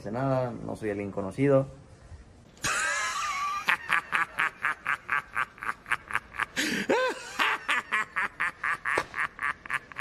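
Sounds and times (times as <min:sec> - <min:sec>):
man laughing hard: 0:02.6 - 0:10.0.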